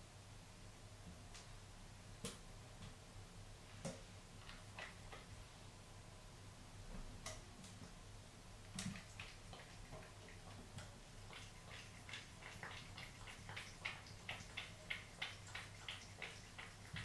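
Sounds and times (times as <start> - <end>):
cat lapping water: 4.5 - 5.3, 8.7 - 17.0.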